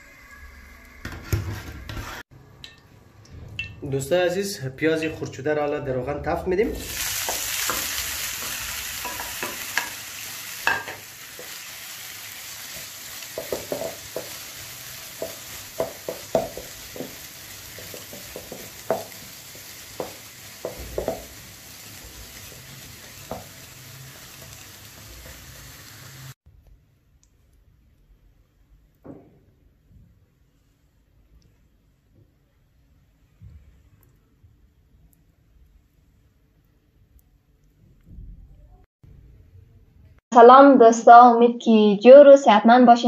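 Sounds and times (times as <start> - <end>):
onions sizzling in oil: 6.8 - 26.4.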